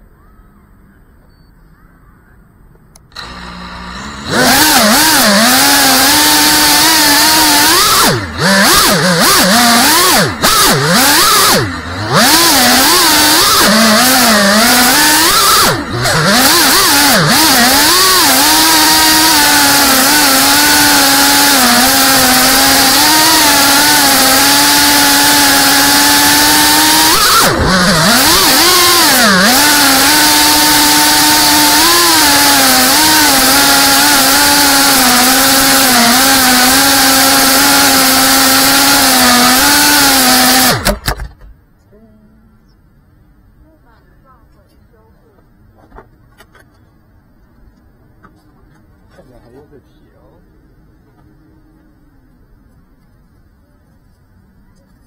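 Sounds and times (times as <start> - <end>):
quadcopter motors whining: 3.0 - 42.3.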